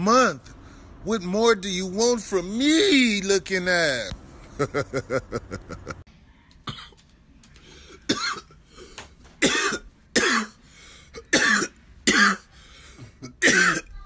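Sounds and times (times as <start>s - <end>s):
man coughing harshly: 8.1s - 8.5s, 9.4s - 10.6s, 11.2s - 13.9s.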